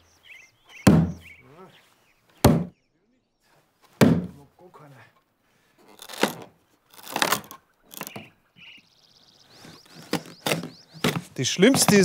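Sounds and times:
axe chopping log: 0.8 - 1.2, 2.4 - 2.7, 4.0 - 4.3
wood splitting and cracking: 5.9 - 8.3.

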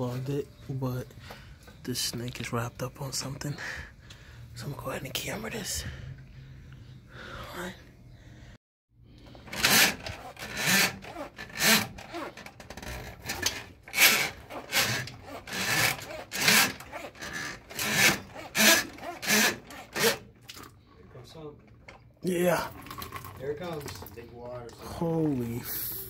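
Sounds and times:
steel cable rasping against glove: 9.4 - 20.3.

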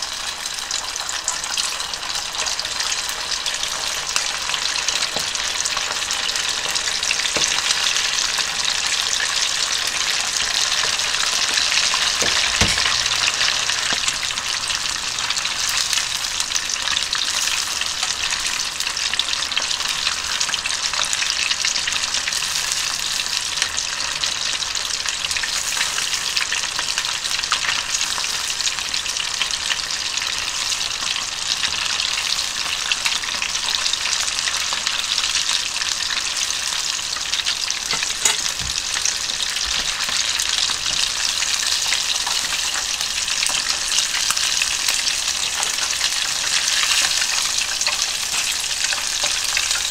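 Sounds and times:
chicken sizzling in oil: 0.0 - 49.9
dull knock: 12.2 - 13.1.

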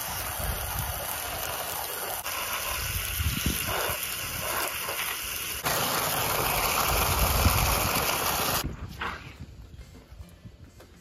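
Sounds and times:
hose spray hissing: 0.0 - 8.6.

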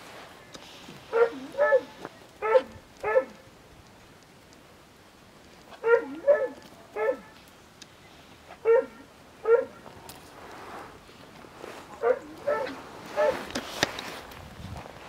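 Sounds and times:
dog barking: 1.1 - 3.4, 5.8 - 7.4, 8.6 - 9.8, 12.0 - 13.5.

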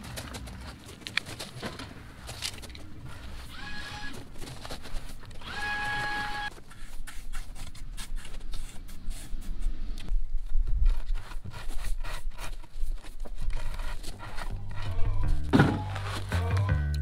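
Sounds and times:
rake scraping crushed stone: 15.7 - 16.4.

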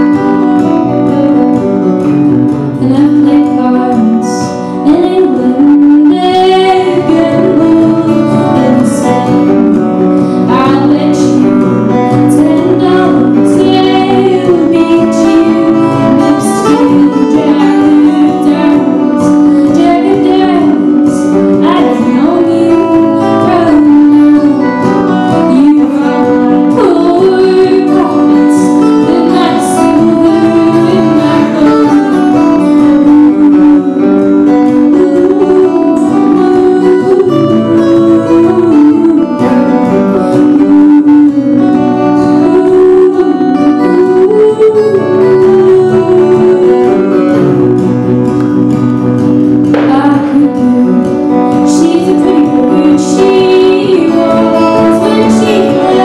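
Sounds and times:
woman singing: 0.0 - 48.9, 49.6 - 56.0
acoustic guitars playing: 0.0 - 56.0.

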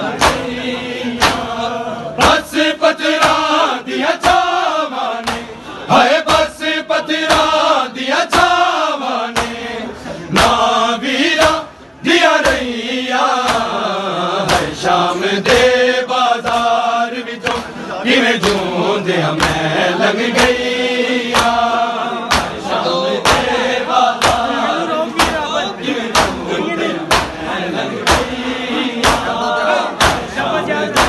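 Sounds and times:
men chanting: 0.0 - 31.0
hands slapping chests: 0.2 - 0.5, 1.2 - 1.5, 4.2 - 4.6, 5.2 - 5.5, 9.3 - 9.6, 13.4 - 13.7, 18.4 - 18.7, 19.3 - 19.6, 21.3 - 21.7, 22.3 - 22.6, 23.2 - 23.5, 24.2 - 24.5, 26.1 - 26.4, 27.1 - 27.4, 29.0 - 29.3, 30.0 - 30.3.

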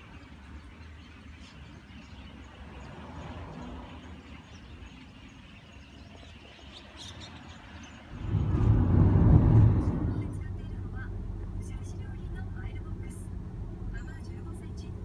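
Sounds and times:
distant road traffic rumble: 0.0 - 15.0
loud vehicle rumble: 8.1 - 15.0.

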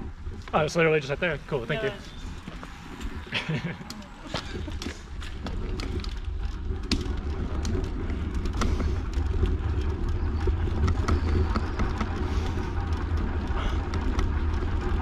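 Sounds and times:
bicycle tyre noise: 0.0 - 15.0
wind rumble on microphone: 0.0 - 15.0
sharp clicks and rattles: 2.6 - 15.0.

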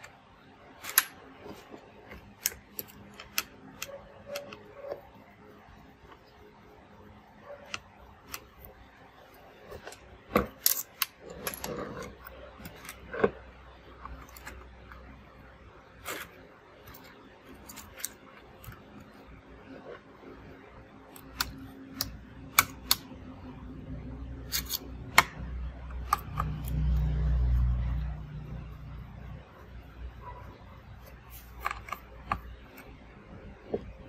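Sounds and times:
low hum: 11.2 - 34.0.

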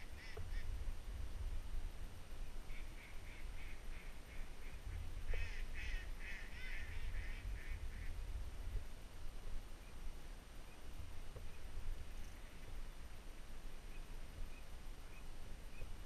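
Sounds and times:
ducks calling: 0.0 - 0.7, 2.7 - 8.2.

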